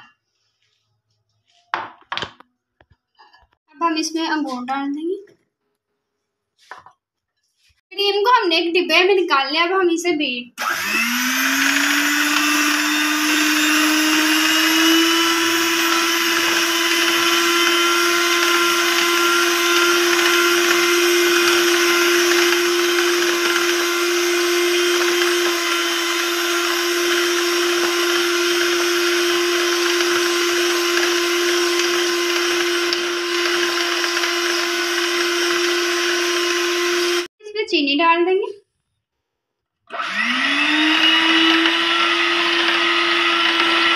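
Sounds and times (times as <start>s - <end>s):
electric hand mixer whining: 10.6s - 37.3s, 39.9s - 43.9s.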